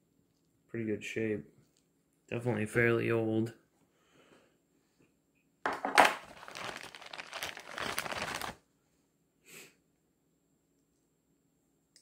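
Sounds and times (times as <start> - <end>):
plastic bag crinkling: 6.0 - 8.6.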